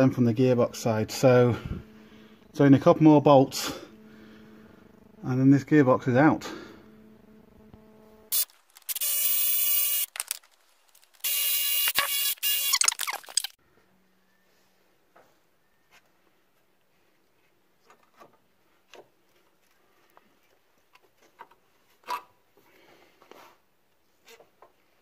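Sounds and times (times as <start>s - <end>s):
power wrench running: 1.2s - 13.6s
handling noises: 9.8s - 11.3s.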